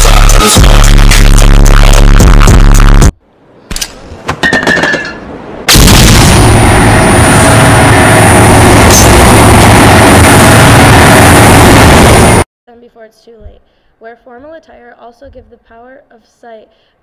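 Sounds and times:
high whine: 5.6 - 12.5
distorted explosion noise: 5.7 - 12.4.

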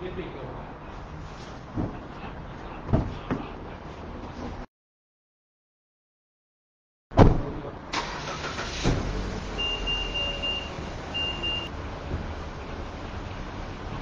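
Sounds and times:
car door shutting: 7.2 - 9.2
car warning chime beeping: 9.6 - 11.7.

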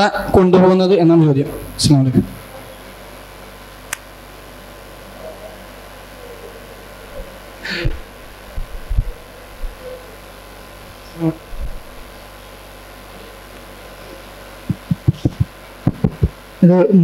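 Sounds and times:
electrical hum: 0.0 - 17.0
microphone thumps: 7.2 - 9.8, 11.2 - 12.0, 14.6 - 16.4.

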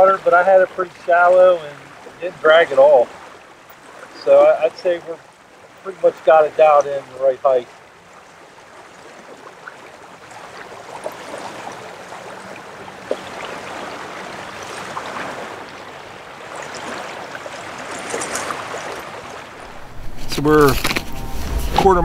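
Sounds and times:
water rushing along kayak hull: 0.0 - 22.0
small splashy clicks: 17.8 - 19.0.

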